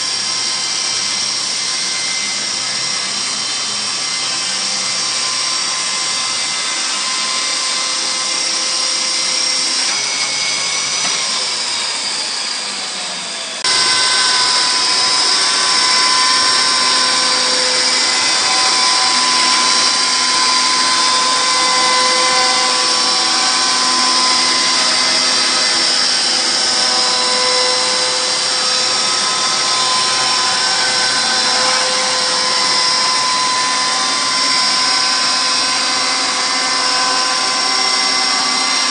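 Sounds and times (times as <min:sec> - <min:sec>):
electric chainsaw mill whining: 0:00.0 - 0:38.9.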